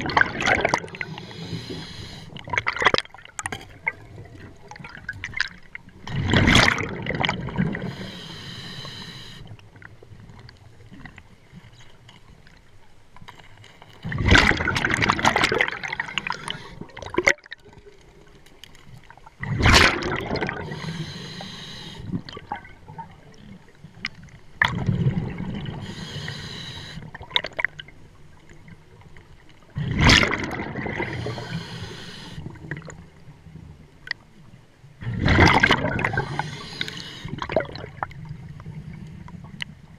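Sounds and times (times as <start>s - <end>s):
exhaled bubbles rushing: 0.0s - 1.2s, 2.4s - 8.0s, 14.1s - 17.3s, 19.4s - 20.9s, 24.6s - 25.9s, 29.8s - 31.6s, 35.0s - 36.6s, 37.3s - 38.6s
diving regulator hiss: 1.0s - 2.4s, 7.8s - 9.5s, 16.1s - 16.8s, 20.6s - 22.1s, 25.8s - 27.1s, 31.1s - 32.5s, 36.2s - 37.4s.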